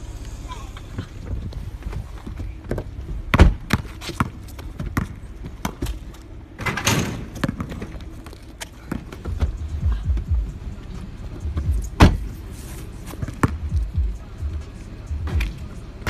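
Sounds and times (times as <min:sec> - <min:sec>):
basketball thuds: 0:02.3 - 0:06.0, 0:06.6 - 0:08.0
basketball hoop rattling: 0:02.3 - 0:08.2.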